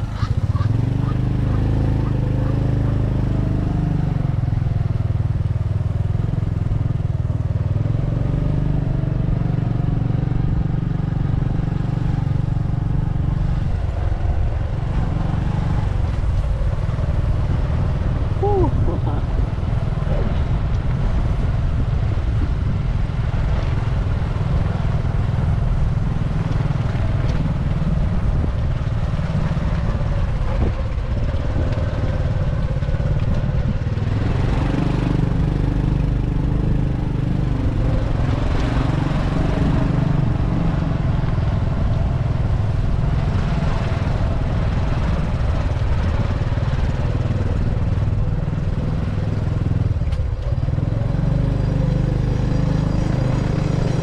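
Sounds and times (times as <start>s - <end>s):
motorbike engine running: 0.0s - 54.0s
heavy low rumble: 13.1s - 23.5s.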